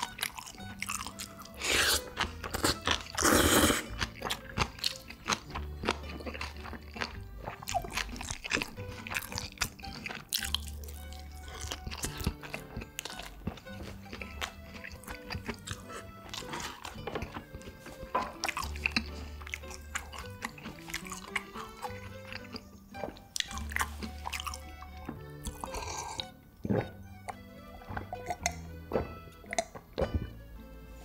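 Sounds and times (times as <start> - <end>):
background music with low notes: 0.0 - 31.0
person chewing and crunching food: 0.0 - 31.0.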